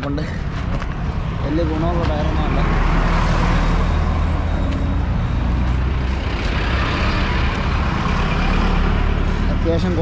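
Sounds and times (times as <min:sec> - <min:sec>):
road traffic passing: 0:00.0 - 0:10.0.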